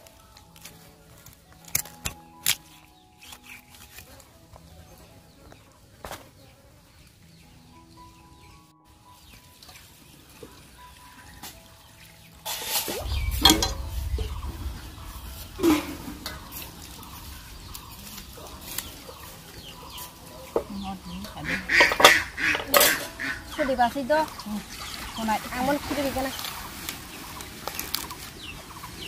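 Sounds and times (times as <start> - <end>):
chickens clucking: 9.1 - 29.0
low rumble: 12.9 - 19.6.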